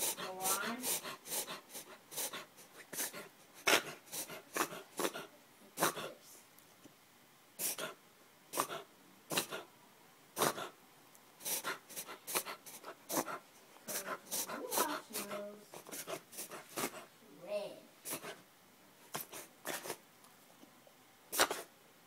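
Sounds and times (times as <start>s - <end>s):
puppy reverse sneezing: 0.0s - 6.2s, 7.6s - 9.7s, 10.4s - 10.8s, 11.4s - 17.0s, 18.0s - 18.4s, 19.1s - 20.0s, 21.3s - 21.7s.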